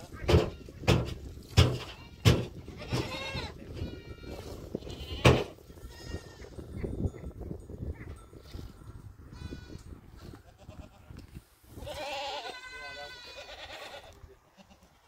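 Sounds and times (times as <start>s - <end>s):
goats bleating: 1.8s - 6.6s, 9.4s - 11.1s, 11.8s - 15.0s.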